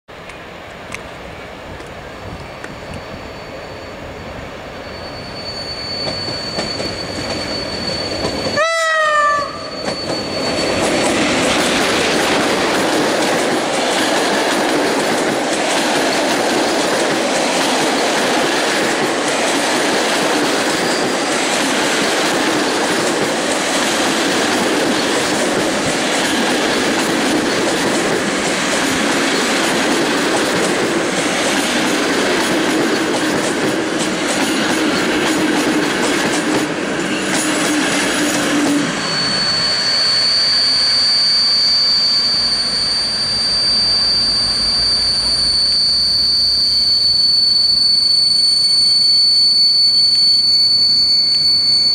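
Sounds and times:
train wheels rumbling: 0:00.1 - 0:48.6
thin high whine: 0:01.4 - 0:15.6, 0:16.8 - 0:29.9, 0:36.7 - 0:51.9
train horn blast: 0:08.5 - 0:09.8
clickety-clack over rail joints: 0:10.8 - 0:38.9.

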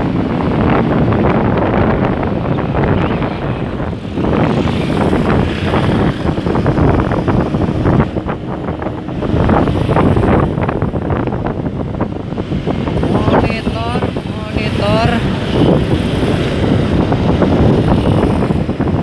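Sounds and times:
motorcycle running: 0:00.0 - 0:19.0
road noise: 0:00.0 - 0:19.0
wind rushing over microphone: 0:00.0 - 0:19.0.

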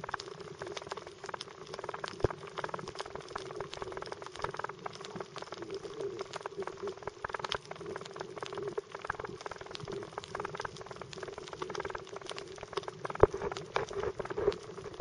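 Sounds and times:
underwater clicks and pops: 0:12.8 - 0:15.0.

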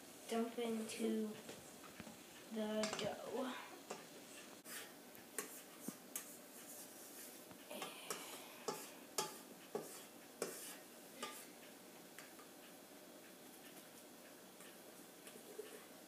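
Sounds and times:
utensil tapping metal bowl: 0:07.8 - 0:10.6
utensil scraping metal bowl: 0:08.1 - 0:11.5.

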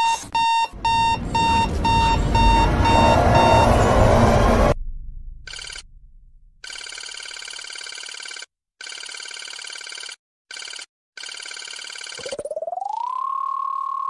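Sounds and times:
rapid electronic trilling beeps: 0:00.4 - 0:06.0
rising electronic tone: 0:00.7 - 0:06.6.

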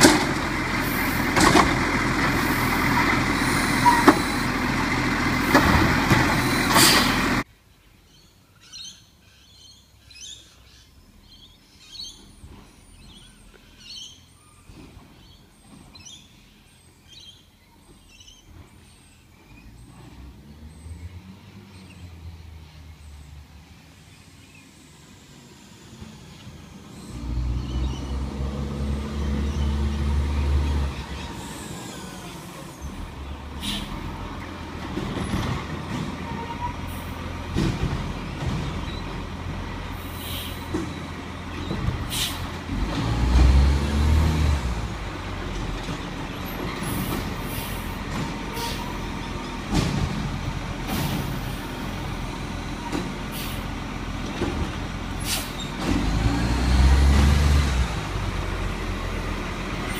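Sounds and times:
truck clunks: 0:00.0 - 0:07.4, 0:14.6 - 0:16.2, 0:27.4 - 0:59.9
diesel truck engine revving: 0:00.0 - 0:07.5, 0:19.6 - 0:59.9
air-brake hisses: 0:06.4 - 0:07.2, 0:33.6 - 0:34.1, 0:40.0 - 0:40.8, 0:42.1 - 0:42.5, 0:46.8 - 0:48.0, 0:53.3 - 0:53.7, 0:55.2 - 0:55.8.

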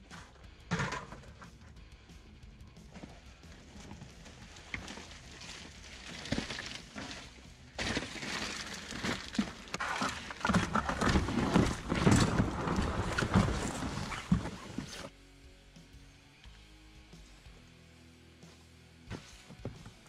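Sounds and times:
plastic clattering: 0:00.7 - 0:01.4, 0:04.6 - 0:15.1
rustling: 0:02.9 - 0:15.1.

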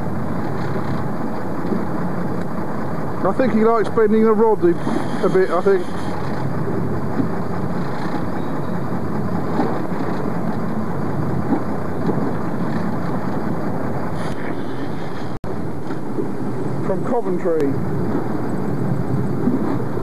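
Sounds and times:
boat engine rumble: 0:00.0 - 0:20.0
water noise: 0:00.0 - 0:20.0
wind: 0:00.0 - 0:20.0.

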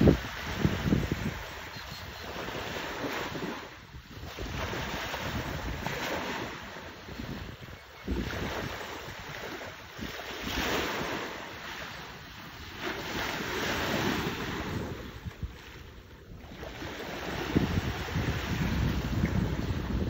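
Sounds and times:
sea waves washing in: 0:00.0 - 0:20.0
wind buffeting microphone: 0:00.0 - 0:20.0.

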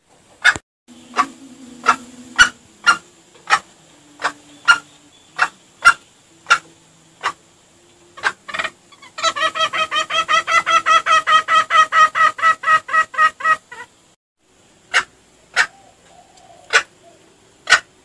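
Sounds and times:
junglefowl clucking: 0:00.4 - 0:13.9, 0:14.9 - 0:18.0.

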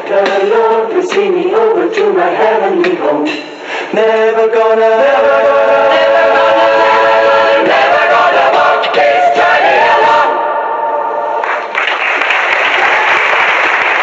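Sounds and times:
voices singing with music: 0:00.0 - 0:11.4
applause: 0:11.4 - 0:14.0.

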